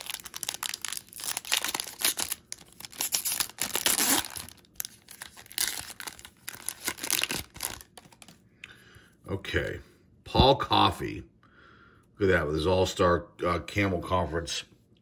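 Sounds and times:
foil wrapper tearing and crinkling: 0.0s - 8.4s.

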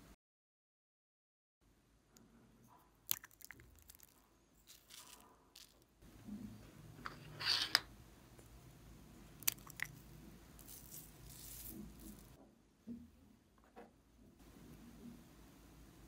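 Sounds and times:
plastic shaker bottle rattling: 3.2s - 5.8s, 10.6s - 12.4s
glitter falling hiss: 9.5s - 12.4s.

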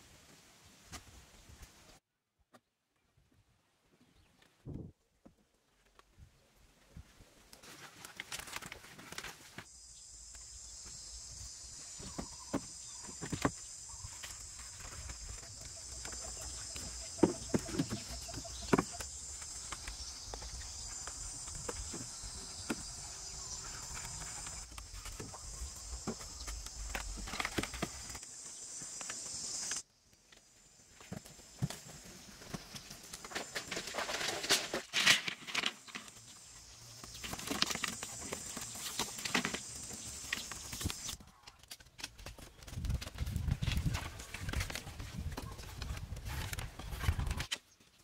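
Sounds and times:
high insect drone: 9.7s - 41.2s.

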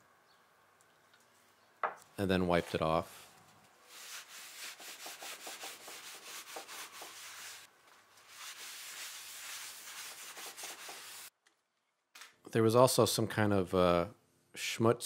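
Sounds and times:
paper towel scrubbing wood: 3.9s - 11.3s.

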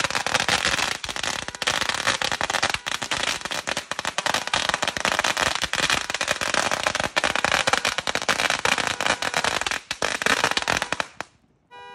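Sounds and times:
firecrackers rattling: 0.0s - 11.4s.

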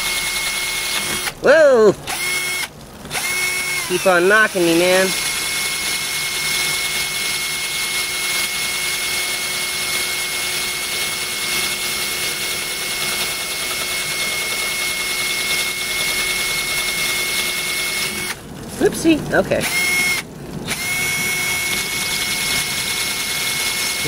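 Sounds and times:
cordless drill grinding glass: 0.0s - 18.4s, 19.6s - 24.0s
water pouring: 17.1s - 19.5s.

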